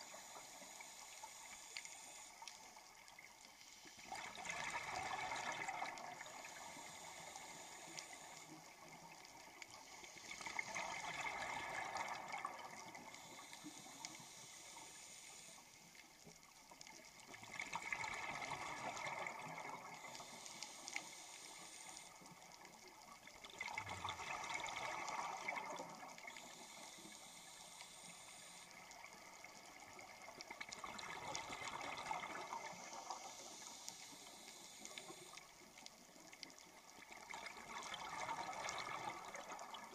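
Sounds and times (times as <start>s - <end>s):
regulator hiss: 0.0s - 16.1s, 18.6s - 22.8s, 26.2s - 30.4s, 31.1s - 36.3s
exhaled bubbles underwater: 4.0s - 7.2s, 10.2s - 13.4s, 17.3s - 20.5s, 23.0s - 27.3s, 28.9s - 33.7s, 36.9s - 39.9s.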